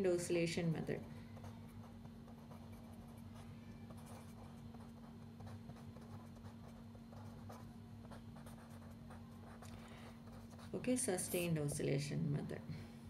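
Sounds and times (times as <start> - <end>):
low steady hum: 0.0 - 13.0
pen scratching on paper: 3.9 - 9.6.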